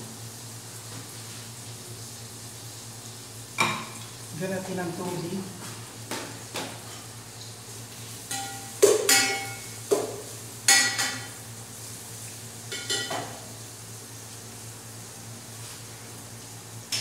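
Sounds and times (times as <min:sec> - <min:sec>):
utensil clanking on metal pot: 0:08.3 - 0:09.6, 0:12.7 - 0:13.3.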